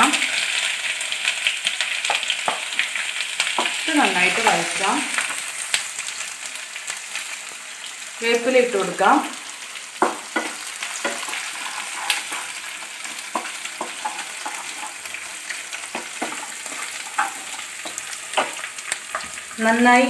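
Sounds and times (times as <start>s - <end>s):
food sizzling in hot oil: 0.0s - 20.0s
spatula scraping a pan: 10.0s - 19.5s.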